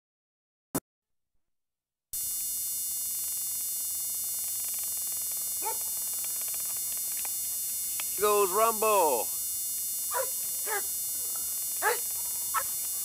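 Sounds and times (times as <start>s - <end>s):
high thin electronic whine: 2.2s - 13.0s
videotape playback hiss: 3.2s - 13.0s.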